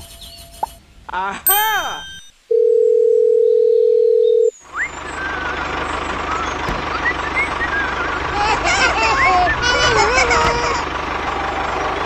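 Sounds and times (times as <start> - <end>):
faint chirping whistles: 4.5 - 8.4
tractor engine chugging: 4.6 - 12.0.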